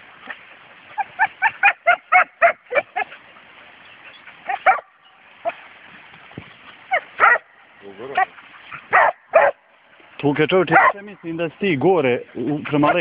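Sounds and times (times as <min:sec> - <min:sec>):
dogs barking: 0:00.9 - 0:03.3, 0:04.4 - 0:05.6, 0:06.9 - 0:09.7, 0:10.7 - 0:11.1.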